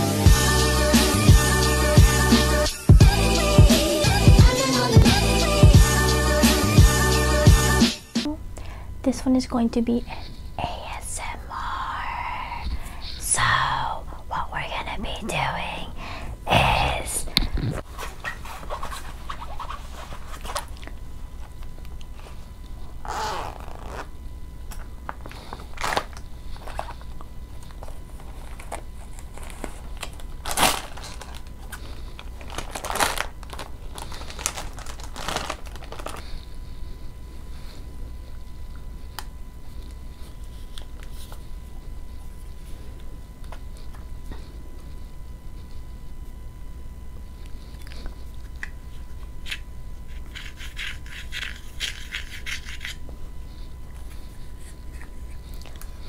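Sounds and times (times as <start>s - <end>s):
fabric bag unzipping: 23.0s - 24.1s
plastic pouch crinkling: 25.3s - 36.4s.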